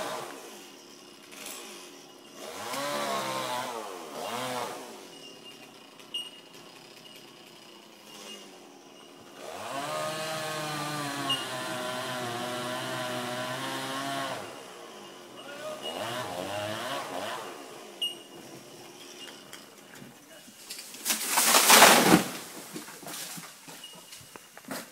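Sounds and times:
chainsaw cutting: 0.0 - 19.7.

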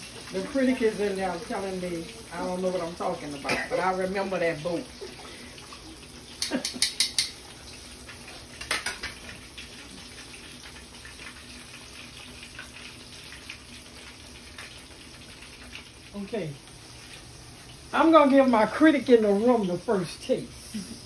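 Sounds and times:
fish sizzling in oil: 0.0 - 21.0
metal tongs clinking on pan: 6.4 - 7.4.

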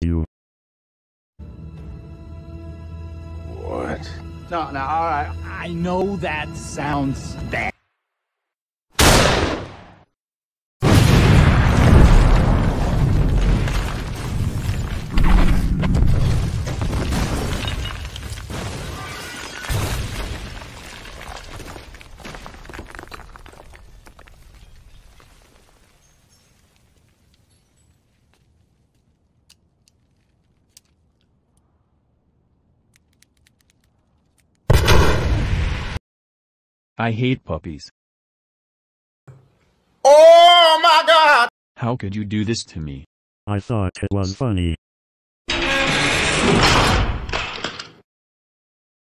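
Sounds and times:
explosion boom: 10.8 - 17.8, 34.7 - 36.0
debris crashing and shattering: 10.8 - 29.2
faint clicks: 32.9 - 34.6.

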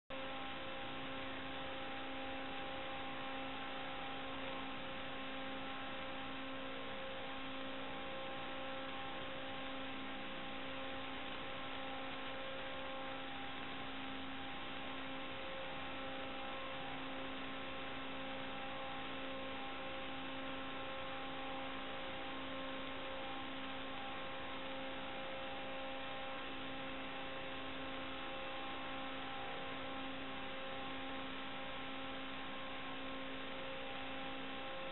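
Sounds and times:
electrical hum: 0.1 - 34.9
static hiss: 0.1 - 34.9.

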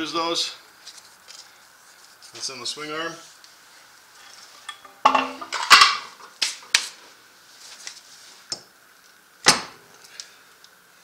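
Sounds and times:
metal clanks and knocks: 4.7 - 6.0.

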